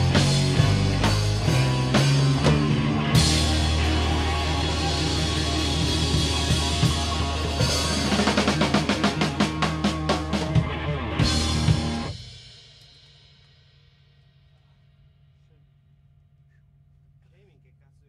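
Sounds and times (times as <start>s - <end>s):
fast drum roll: 0.0s - 12.5s
rock band playing: 0.0s - 13.4s.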